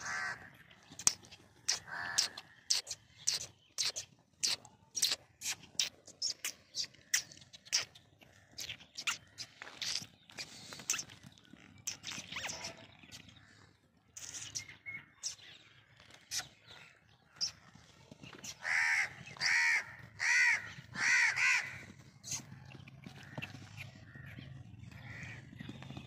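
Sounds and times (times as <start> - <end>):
crow cawing: 0.0 - 0.5, 1.8 - 2.6, 18.6 - 21.9, 25.0 - 25.4.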